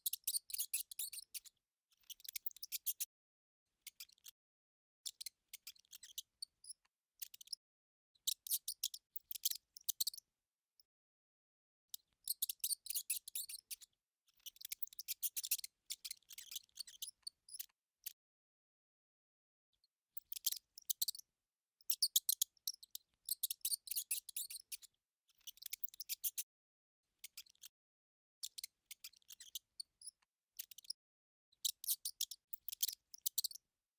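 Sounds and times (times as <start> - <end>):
mouse squeaking: 0.0 - 3.1, 3.8 - 4.4, 5.0 - 7.6, 8.2 - 10.2, 11.9 - 18.2, 20.2 - 26.5, 27.2 - 27.8, 28.4 - 31.0, 31.6 - 33.6.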